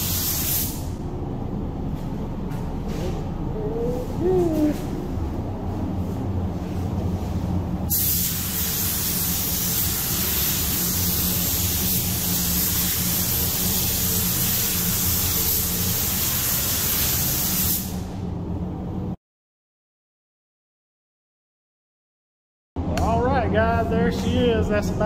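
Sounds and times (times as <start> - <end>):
spray gun hissing: 0.0 - 1.0, 7.9 - 18.1
low hum: 0.8 - 7.9.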